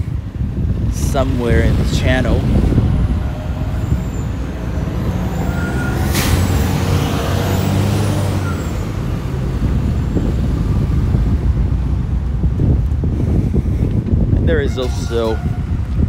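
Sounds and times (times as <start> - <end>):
heavy vehicle engine running: 0.0 - 14.3.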